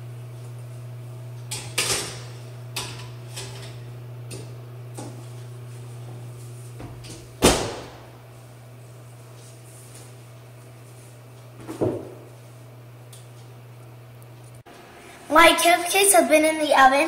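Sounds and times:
metal tin clattering on oven rack: 1.5 - 3.9
oven door shutting thud: 6.8 - 8.2.

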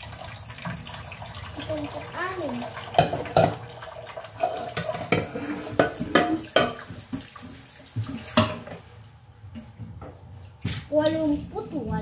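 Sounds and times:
tap water running into sink: 0.0 - 8.9, 9.5 - 12.0
frying pan scrubbing: 1.6 - 9.2
pans clanking against sink: 2.9 - 8.9.

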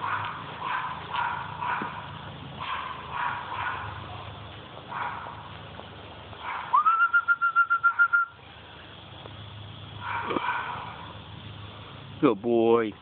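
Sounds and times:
high warbling whistle: 6.7 - 8.4.

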